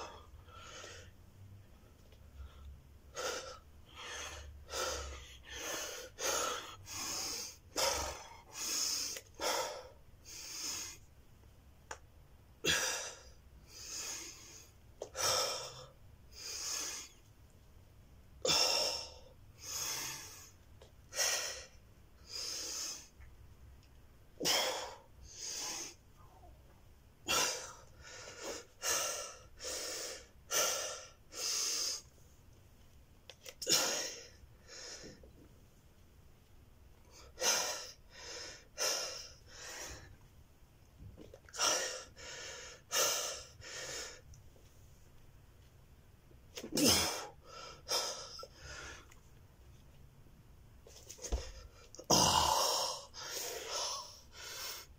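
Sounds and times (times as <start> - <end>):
man breathing hard: 2.4 - 11.0, 12.6 - 17.2, 18.4 - 23.1, 27.2 - 32.1, 33.6 - 35.3, 37.1 - 40.2, 41.4 - 44.2, 46.8 - 49.2, 51.3 - 54.9.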